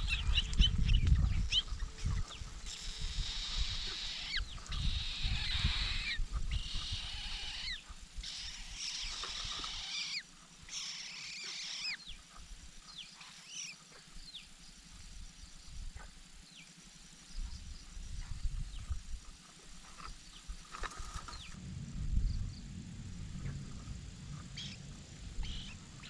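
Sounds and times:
nestlings raspy begging calls: 0.0 - 12.3, 12.9 - 14.1, 25.4 - 25.8
low rumble: 21.3 - 26.0.

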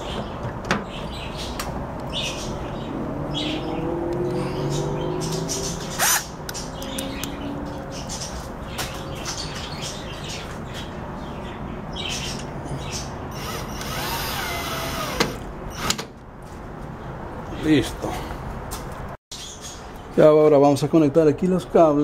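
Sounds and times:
power drill driving screws: 13.3 - 16.0
drill click: 13.4 - 16.0.

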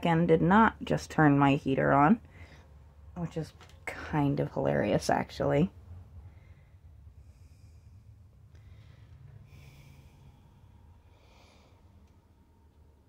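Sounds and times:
low steady hum: 0.0 - 13.0
faint breathing: 2.2 - 3.1, 6.0 - 12.9.

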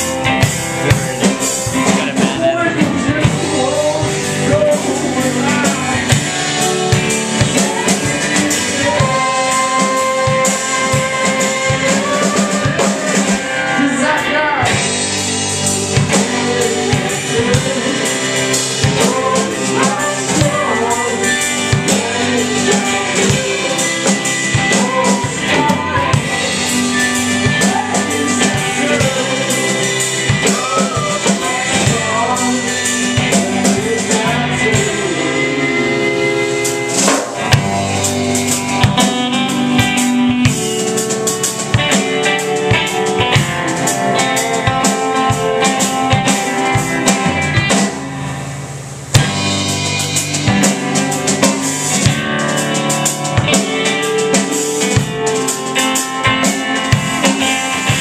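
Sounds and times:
live rock band playing: 0.0 - 58.0
man singing: 0.7 - 36.6, 43.9 - 47.1
loud drum hit: 36.8 - 40.0.

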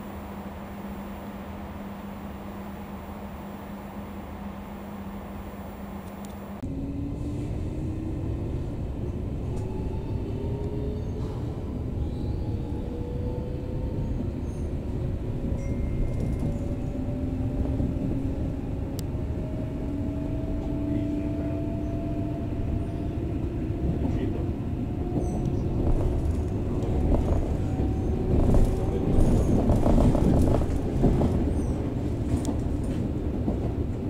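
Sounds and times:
train wheels rumbling on rails: 6.0 - 34.0.

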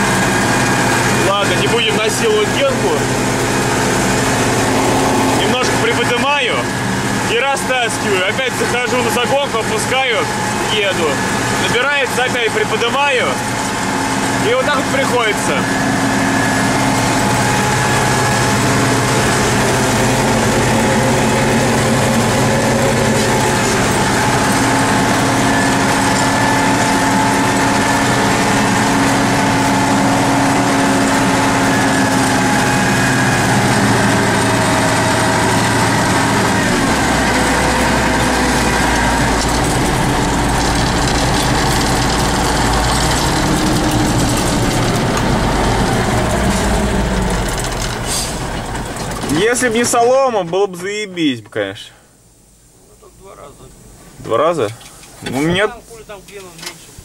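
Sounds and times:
tractor diesel engine running: 0.0 - 51.0
deep low hum: 12.7 - 49.9.

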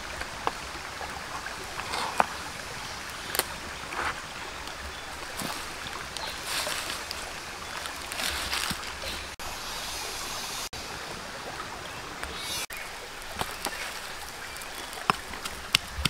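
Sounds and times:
shallow stream running: 0.0 - 16.0.

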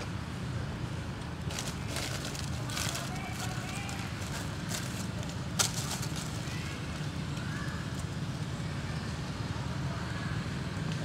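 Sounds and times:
dry leaves crackling: 1.2 - 8.6.

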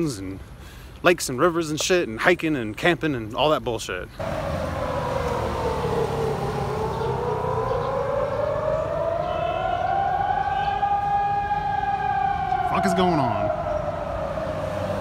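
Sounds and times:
siren wailing: 4.2 - 15.0.

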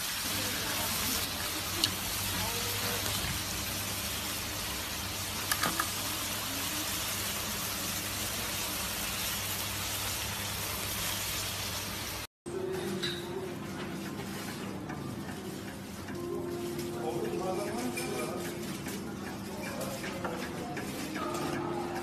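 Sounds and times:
meat sizzling in hot fat: 0.0 - 12.3.

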